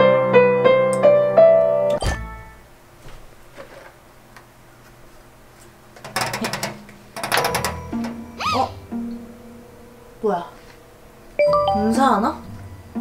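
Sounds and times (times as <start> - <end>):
rapid clicking: 6.0 - 8.2
digital piano phrase: 7.4 - 13.0.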